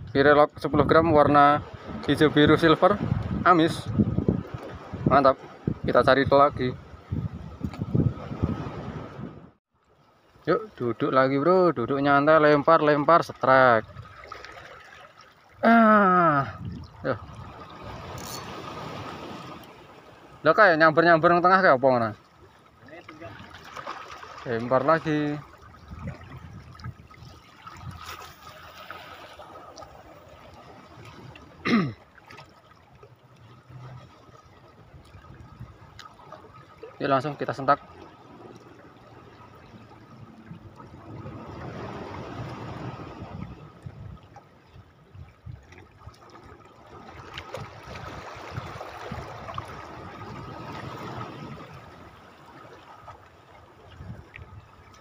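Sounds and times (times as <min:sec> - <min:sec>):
water lapping among rocks: 0:13.8 - 0:15.6, 0:16.2 - 0:20.4, 0:22.2 - 0:55.0.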